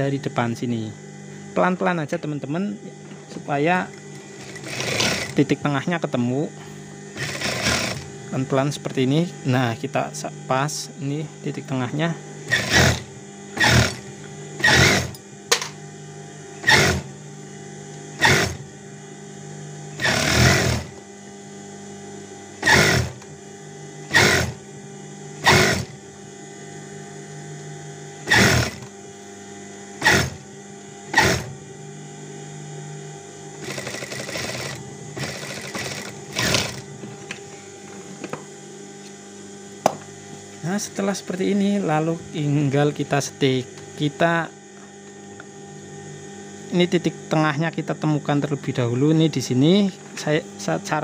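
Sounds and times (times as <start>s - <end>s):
sewing machine motor hum: 2.5s - 10.2s, 11.1s - 38.4s
sewing machine stitching: 4.4s - 5.4s, 7.2s - 8.1s, 12.5s - 14.0s, 14.6s - 15.2s, 16.6s - 17.1s, 18.2s - 18.6s, 20.0s - 21.0s, 22.6s - 23.2s, 24.1s - 24.6s, 25.4s - 26.0s, 28.3s - 28.9s, 30.0s - 30.4s, 31.1s - 31.5s, 33.6s - 36.8s.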